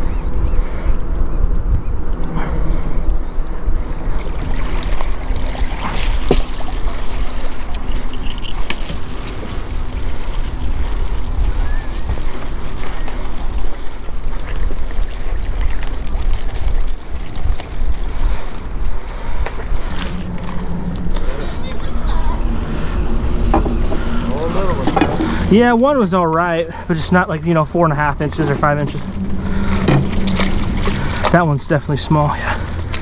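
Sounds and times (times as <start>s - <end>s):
wind rumble on microphone: 0.0s - 26.3s, 26.9s - 33.0s
rope scraping: 26.9s - 33.0s.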